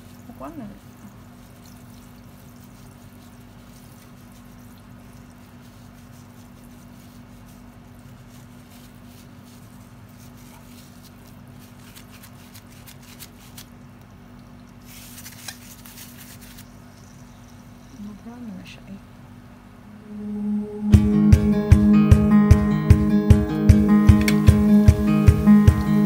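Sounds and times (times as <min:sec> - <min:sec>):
sugar crackling in hot oil: 0:00.0 - 0:18.0
steady low hum: 0:16.6 - 0:26.0.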